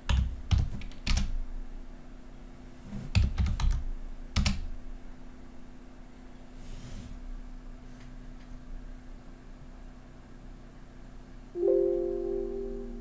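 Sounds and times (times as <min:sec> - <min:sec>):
computer keyboard keystrokes: 0:00.0 - 0:01.4, 0:03.1 - 0:04.7.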